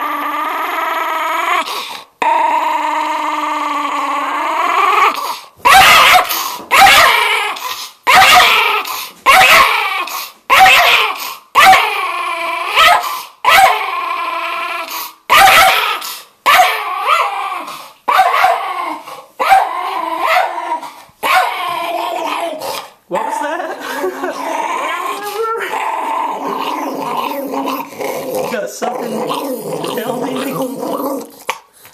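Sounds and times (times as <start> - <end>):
dog whining growl: 0.0 - 5.4, 10.9 - 13.0, 13.7 - 15.1, 18.6 - 31.9
dog barking angrily: 5.6 - 11.9, 12.7 - 13.9, 15.3 - 17.4, 18.1 - 23.5.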